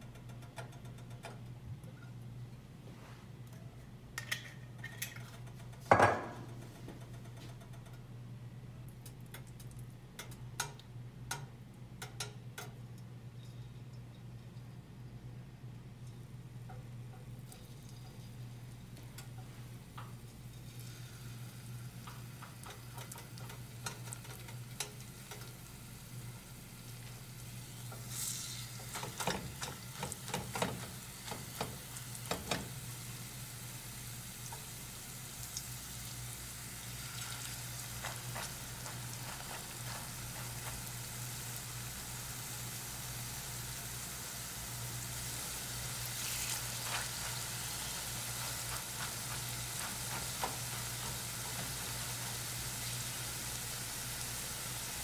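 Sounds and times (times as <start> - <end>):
potato frying in oil: 16.7 - 55.0
steady low hum: 32.8 - 55.0.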